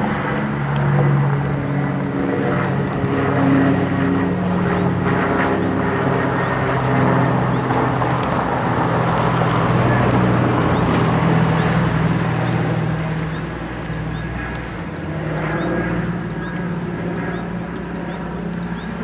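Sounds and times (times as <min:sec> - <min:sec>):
propeller aircraft droning overhead: 0:00.0 - 0:19.0.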